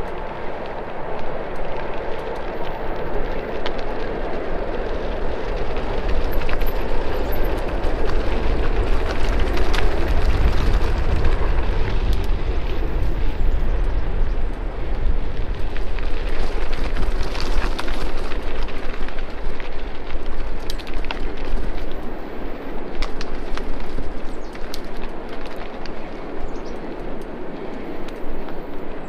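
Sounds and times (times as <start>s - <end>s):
small clicks and rattles: 0.0s - 11.4s, 15.6s - 22.2s
bike tyres rolling on dirt: 0.0s - 29.0s
wind noise on microphone: 0.0s - 29.0s.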